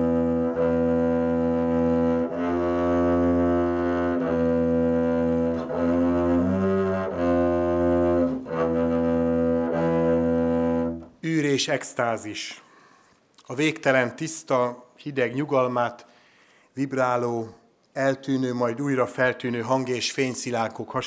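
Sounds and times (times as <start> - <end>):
low bowed string instrument: 0.0 - 11.1.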